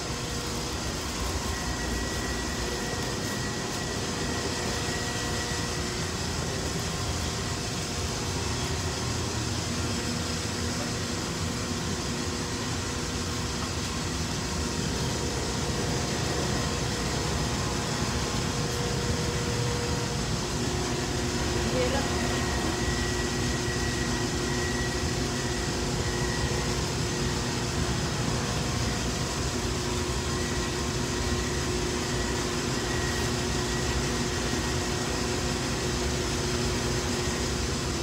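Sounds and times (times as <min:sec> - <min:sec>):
faint steady whines: 0:00.0 - 0:38.0
ventilation machinery humming: 0:00.0 - 0:38.0.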